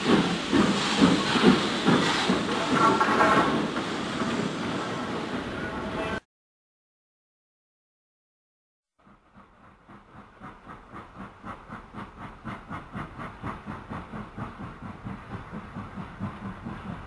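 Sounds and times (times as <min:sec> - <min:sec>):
model train running: 0:09.0 - 0:17.0.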